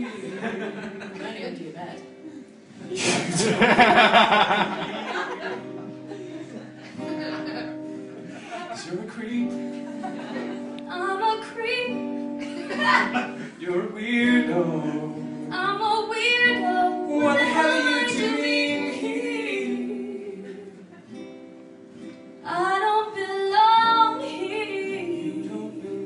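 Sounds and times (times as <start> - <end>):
acoustic guitar: 0.0 - 26.0
woman singing: 10.8 - 20.8, 22.4 - 26.0.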